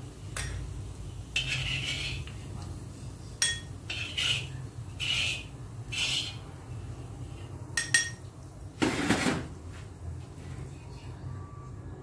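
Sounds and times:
metal ladle scraping wok: 1.3s - 2.4s, 3.8s - 6.6s
ladle clinking: 7.8s - 8.3s.

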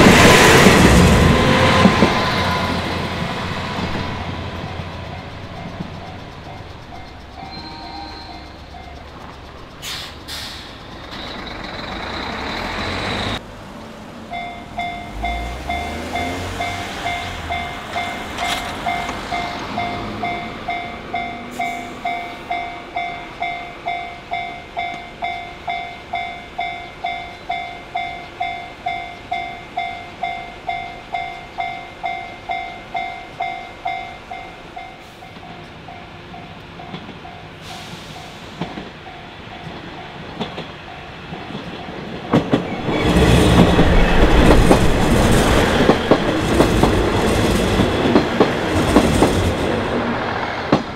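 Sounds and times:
car passing: 0.0s - 7.2s, 10.7s - 21.5s, 42.6s - 50.9s.

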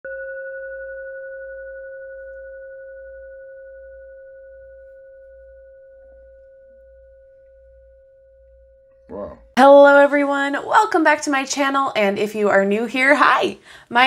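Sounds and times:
singing bowl ringing: 0.0s - 9.1s.

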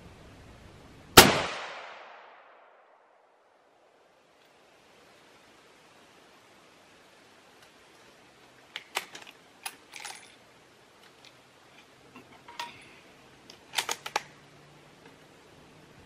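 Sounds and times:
rifle bolt clicking: 13.8s - 14.3s.

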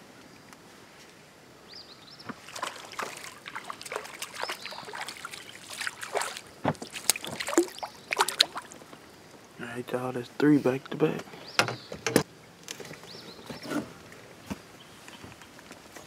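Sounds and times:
fish splashing in water: 2.3s - 8.9s.

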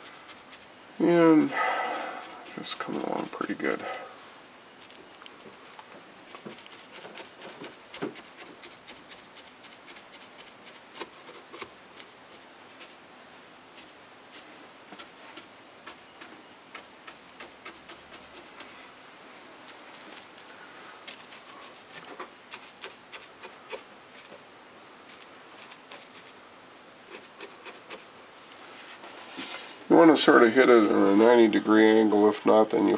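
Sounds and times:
brush tapping and rubbing on board: 0.0s - 4.0s, 4.8s - 13.0s, 13.8s - 18.8s, 19.7s - 24.4s, 25.1s - 26.4s, 27.1s - 28.1s.

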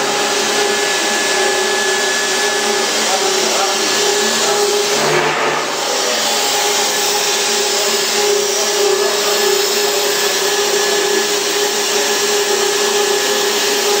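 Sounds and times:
machine hum: 0.0s - 7.4s.

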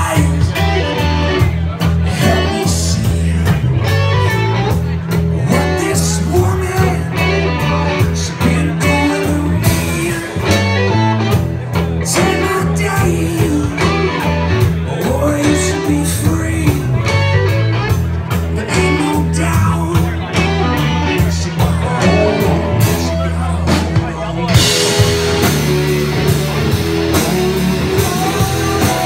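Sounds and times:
person singing: 0.0s - 11.2s, 12.0s - 17.5s, 18.4s - 29.0s
bass guitar: 0.0s - 29.0s
drums with a steady beat: 0.0s - 29.0s
electric guitars: 0.0s - 29.0s.

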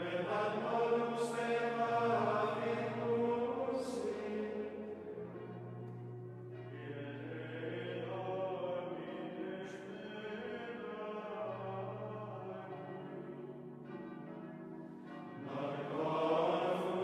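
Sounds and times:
men's choir chanting: 0.0s - 5.9s, 15.4s - 17.0s.

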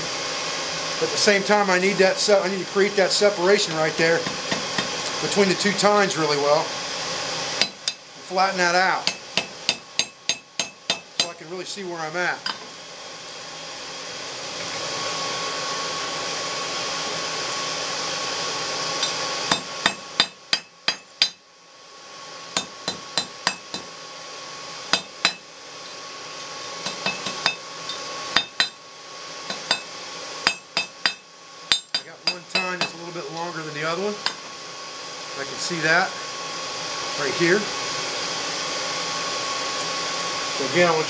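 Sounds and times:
forge air blower rushing: 0.0s - 41.0s
hammer striking steel on anvil: 7.6s - 8.0s, 9.0s - 11.4s, 19.0s - 21.4s, 22.6s - 23.9s, 24.9s - 25.5s, 26.8s - 28.8s, 29.5s - 33.0s.

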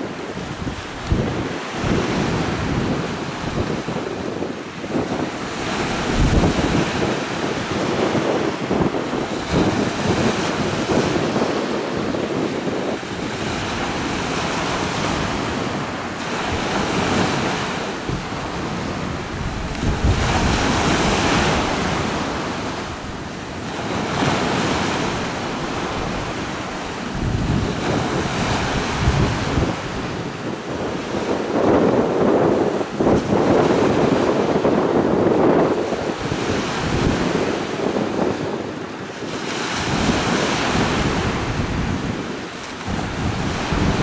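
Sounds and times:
wind buffeting microphone: 0.0s - 44.0s
river water rushing: 2.8s - 10.0s, 12.8s - 29.8s.

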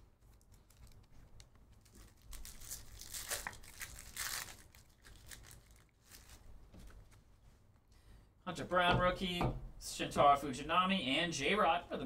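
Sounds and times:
foil wrapper tearing and crinkling: 0.3s - 6.5s.

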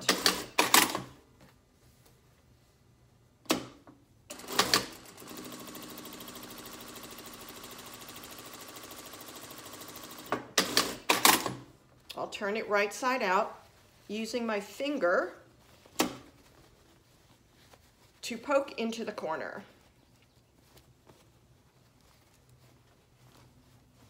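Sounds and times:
sewing machine stitching: 0.0s - 1.1s, 4.3s - 11.6s.

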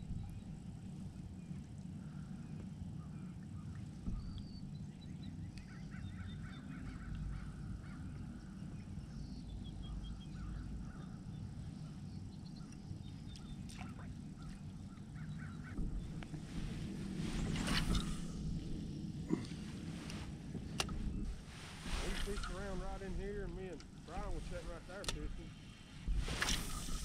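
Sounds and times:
steady low rumble: 0.0s - 27.0s
birds calling: 1.4s - 27.0s.

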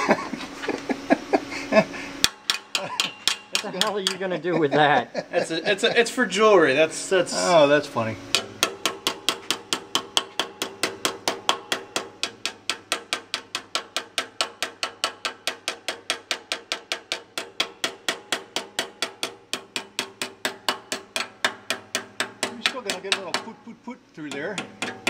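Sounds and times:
hammer tapping on metal pipe: 2.2s - 4.3s, 8.3s - 25.0s.

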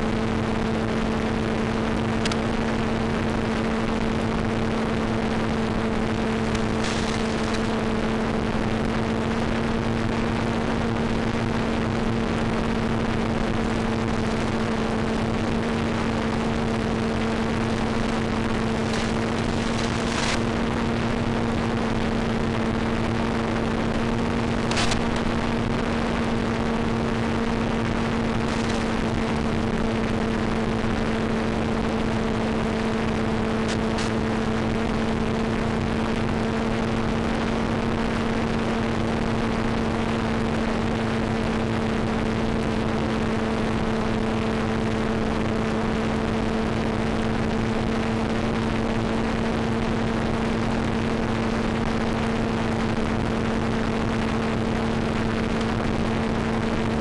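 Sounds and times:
constant low hum: 0.0s - 57.0s
brief crackles: 18.8s - 20.4s, 24.6s - 25.4s.

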